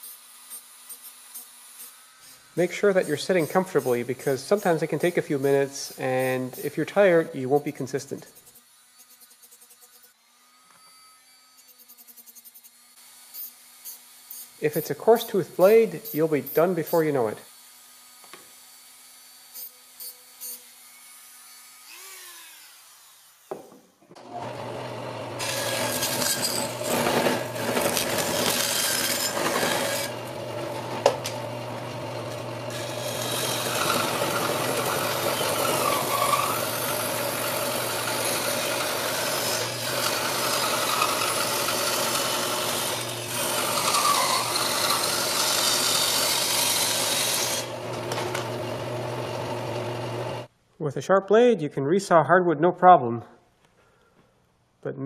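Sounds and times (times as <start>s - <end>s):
bandsaw cutting wood: 0.9s - 10.8s, 24.2s - 50.5s.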